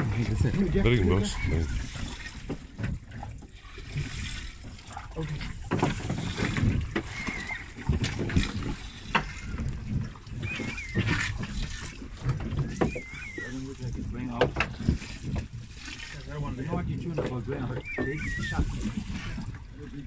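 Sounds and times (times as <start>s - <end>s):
water sloshing against boat hull: 0.0s - 20.0s
short wavering whistle: 10.4s - 11.4s, 12.6s - 13.7s, 17.8s - 18.9s.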